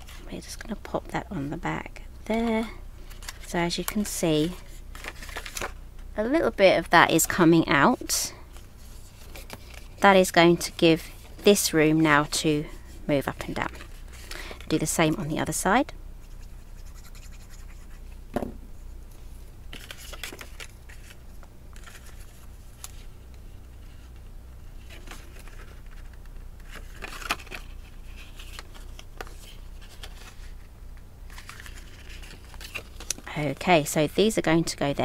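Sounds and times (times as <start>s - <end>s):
cardstock scratching and rustling: 31.3s - 33.3s.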